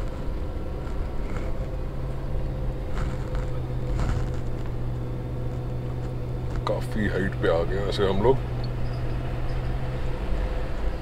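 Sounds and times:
car engine drone: 0:00.0 - 0:11.0.

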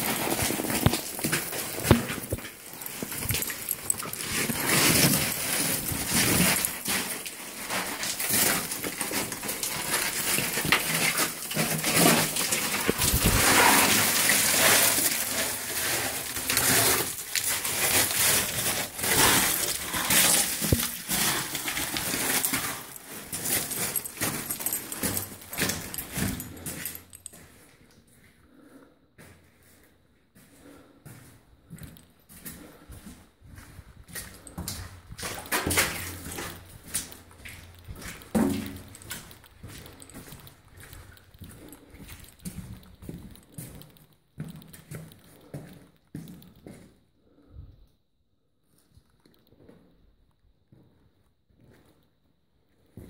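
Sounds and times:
footsteps crunching on loose rock: 0:00.0 - 0:27.1
rustling handling noise: 0:00.0 - 0:27.9, 0:33.5 - 0:46.5.

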